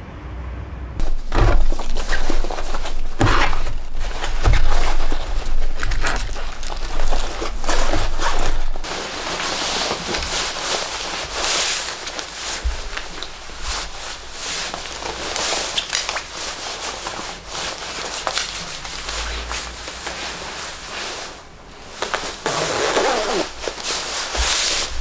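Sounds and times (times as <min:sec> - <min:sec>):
knocks and thuds of objects: 0:01.0 - 0:08.9
fabric bag and gear rustling: 0:01.0 - 0:25.0.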